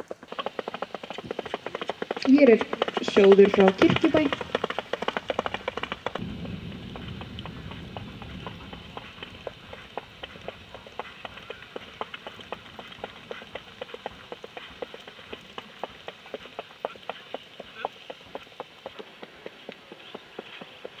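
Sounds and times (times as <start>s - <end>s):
hoof clicks on dirt: 0.0s - 21.0s
low rumble: 6.2s - 12.8s.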